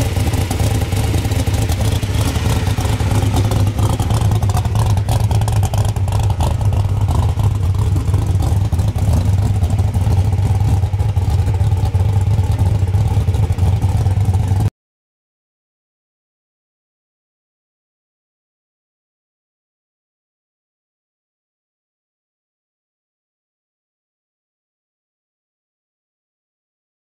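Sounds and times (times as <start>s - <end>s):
loud engine idling: 0.0s - 14.7s.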